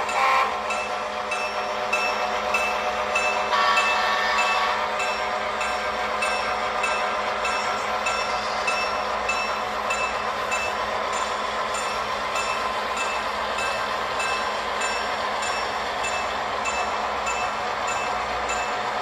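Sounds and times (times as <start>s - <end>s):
model train rolling: 0.0s - 19.0s
light rhythmic ticks: 4.4s - 18.9s.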